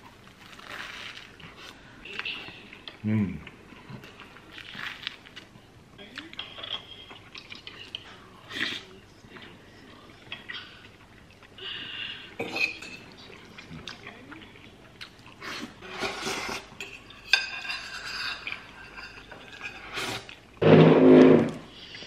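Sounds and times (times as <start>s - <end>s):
fork scraping a bowl: 15.8s - 21.6s.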